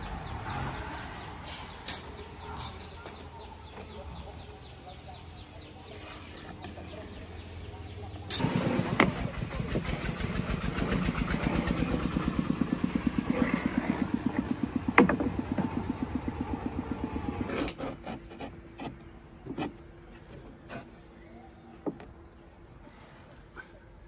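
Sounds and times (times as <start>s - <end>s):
small engine running: 8.3s - 17.8s
sharp knocks: 14.4s - 15.9s.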